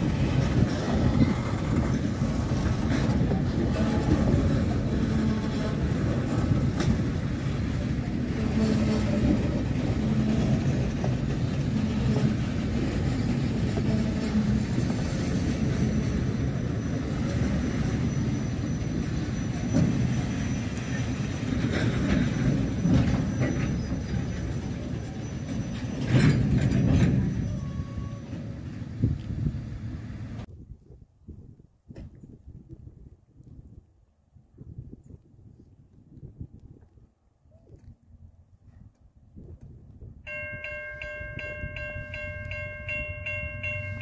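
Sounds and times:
rail clacks: 0:00.0 - 0:29.4, 0:40.3 - 0:44.0
freight train wheels rumbling on rail: 0:00.0 - 0:30.5, 0:39.6 - 0:44.0.

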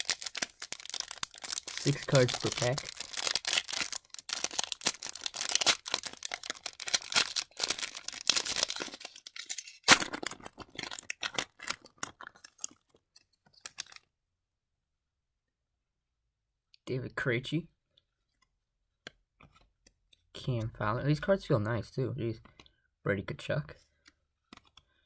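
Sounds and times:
foil wrapper crinkling: 0:00.0 - 0:13.0, 0:13.6 - 0:14.0.

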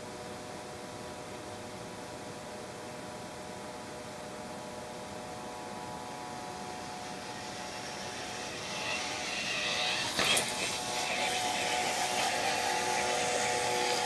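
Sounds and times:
electric motors whining: 0:05.6 - 0:14.0.

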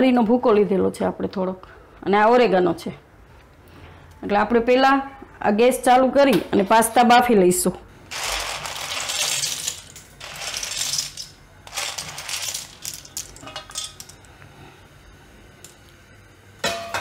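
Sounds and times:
dry pasta rattling into strainer: 0:08.1 - 0:14.2.

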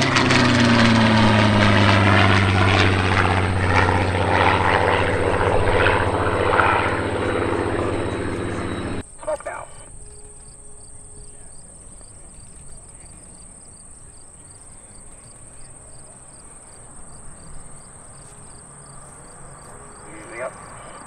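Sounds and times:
crickets chirping: 0:03.3 - 0:21.0
high insect buzz: 0:09.9 - 0:21.0.

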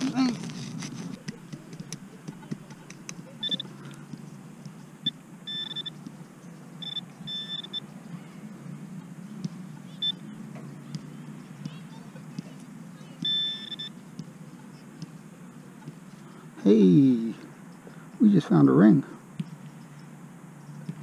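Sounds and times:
soil and grass rustling: 0:00.0 - 0:21.0
metal detector beeps: 0:03.4 - 0:03.7, 0:05.0 - 0:06.0, 0:06.8 - 0:07.9, 0:10.0 - 0:10.2, 0:13.2 - 0:14.0.

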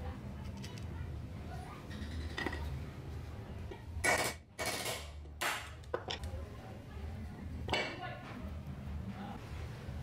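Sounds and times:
metal parts clattering and scraping: 0:01.9 - 0:02.8.

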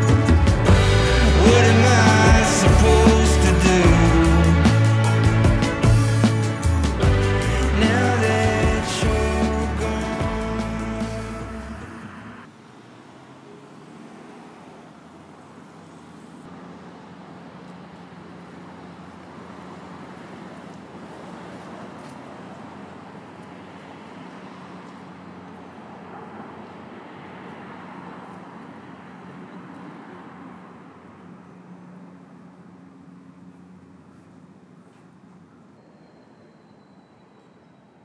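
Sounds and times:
distant road traffic: 0:00.0 - 0:38.0.

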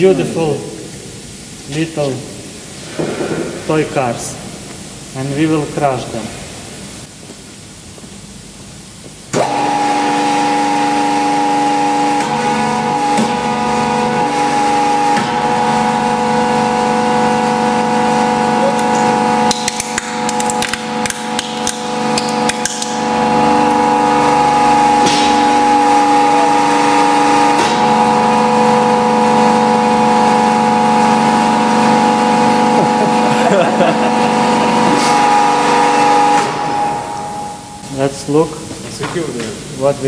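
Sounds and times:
hydraulic press hum: 0:08.8 - 0:37.9.

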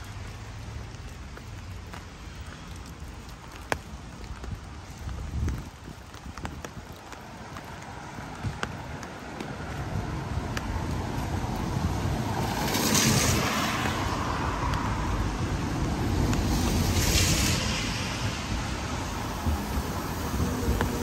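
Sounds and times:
low traffic rumble: 0:00.0 - 0:21.0
cars driving past: 0:09.2 - 0:21.0.

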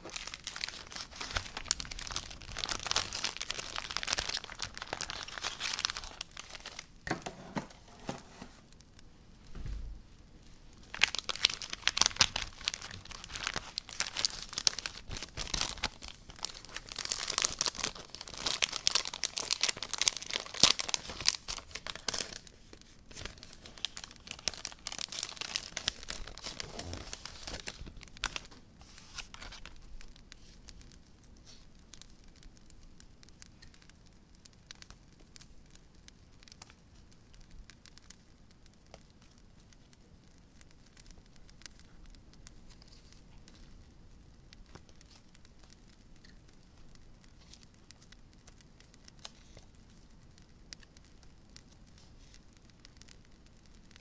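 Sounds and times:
packaging crinkling and tearing: 0:00.0 - 0:08.8, 0:10.8 - 0:32.6.

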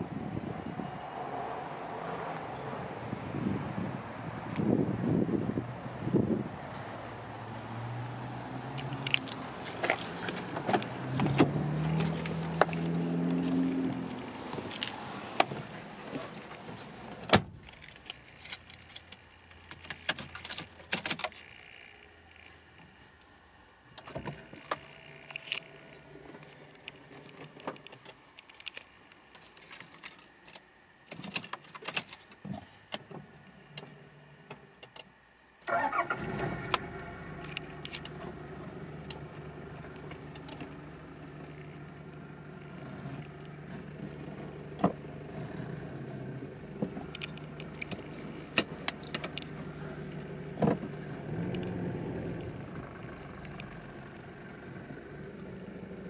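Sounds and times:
keys jangling: 0:17.6 - 0:21.4
diesel engine starting and idling: 0:35.6 - 0:56.0.

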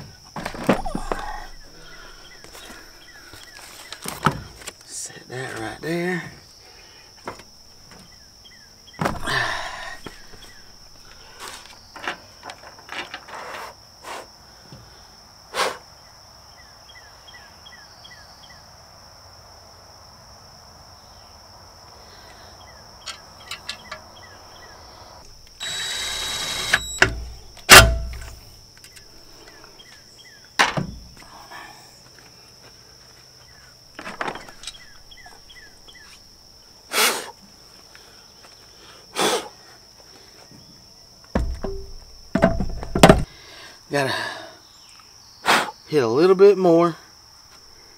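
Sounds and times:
high insect buzz: 0:00.0 - 0:44.0
tools clattering on truck bed: 0:11.9 - 0:13.4, 0:23.0 - 0:24.2, 0:26.8 - 0:29.0, 0:30.6 - 0:31.2, 0:34.0 - 0:35.0, 0:41.4 - 0:43.3
loud thump: 0:27.0 - 0:28.4, 0:41.4 - 0:43.3.

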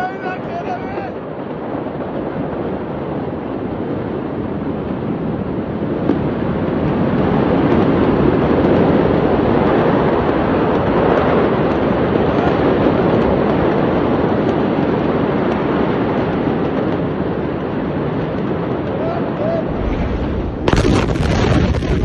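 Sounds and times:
steady rushing noise: 0:00.0 - 0:22.0
faint crackles: 0:05.8 - 0:22.0.

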